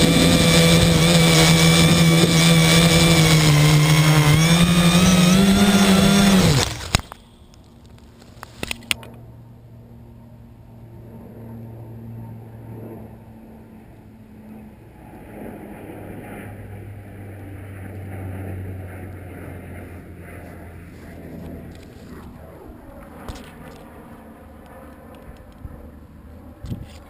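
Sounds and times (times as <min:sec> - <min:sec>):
drone motors humming: 0:00.0 - 0:09.1.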